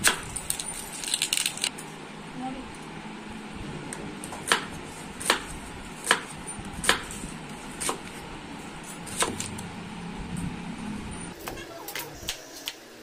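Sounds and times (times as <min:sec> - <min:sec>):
knife chopping on wooden board: 0:04.2 - 0:07.2, 0:07.8 - 0:08.2, 0:09.0 - 0:09.5.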